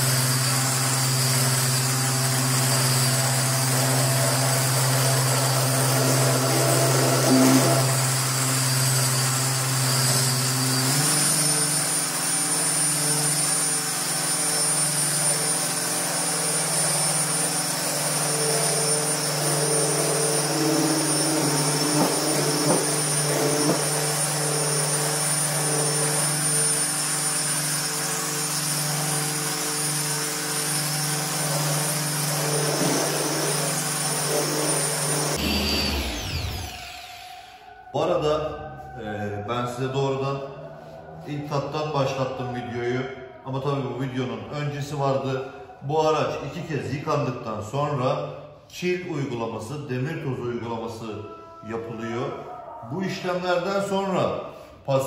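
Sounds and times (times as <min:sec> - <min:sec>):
orbital polisher running: 0:00.0 - 0:37.9.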